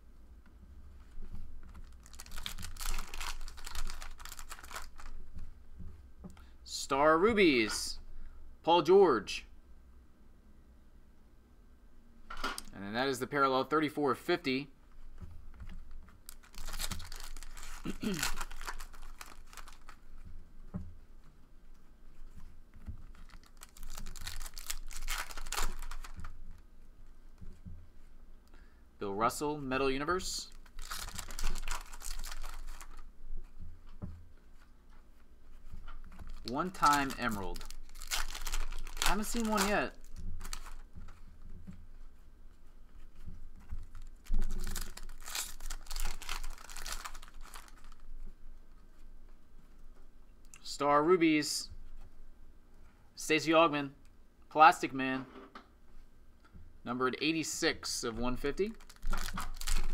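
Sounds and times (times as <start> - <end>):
foil wrapper tearing and crinkling: 1.8 - 5.2, 16.2 - 20.0, 23.0 - 26.3, 30.5 - 33.1, 36.1 - 40.9, 43.8 - 48.1, 58.6 - 59.9.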